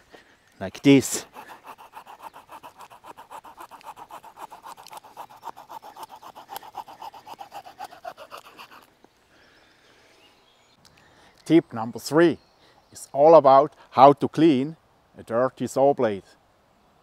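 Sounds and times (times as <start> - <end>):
saw cutting wooden stick: 0.7 - 8.9.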